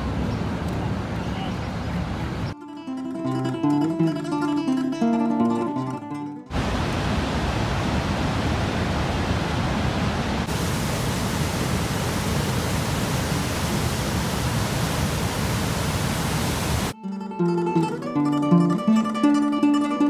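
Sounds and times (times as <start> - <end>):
river water rushing over weir: 6.5 - 17.0.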